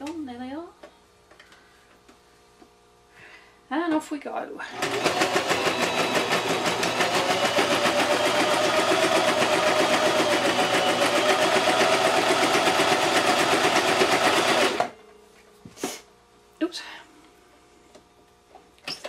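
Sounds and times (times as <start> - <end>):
sewing machine stitching: 4.7 - 14.9.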